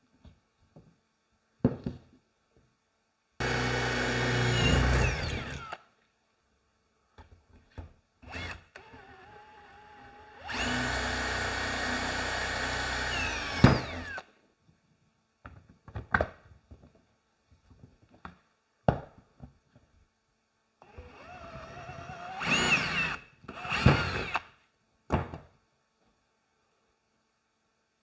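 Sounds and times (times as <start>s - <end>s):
power tool motor whining: 3.4s - 5.8s, 8.2s - 14.2s, 20.8s - 24.5s.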